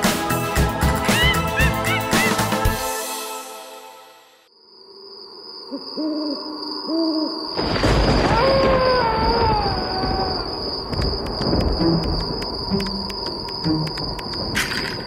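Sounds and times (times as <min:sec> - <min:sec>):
owl hooting: 0:05.7 - 0:07.4.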